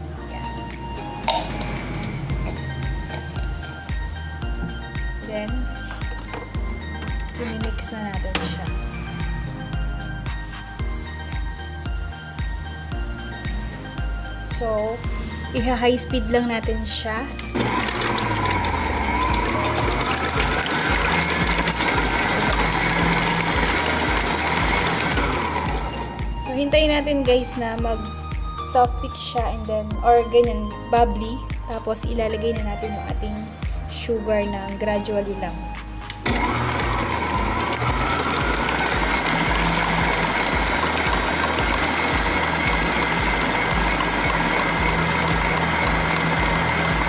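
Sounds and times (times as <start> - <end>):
stand mixer whirring: 17.5 - 26.3, 36.2 - 47.0.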